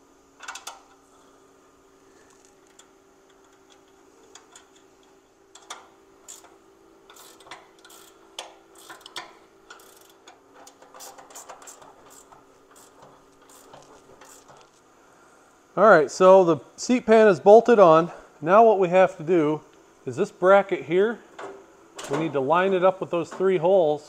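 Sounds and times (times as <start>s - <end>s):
wrench clicking on metal: 5.5s - 14.6s.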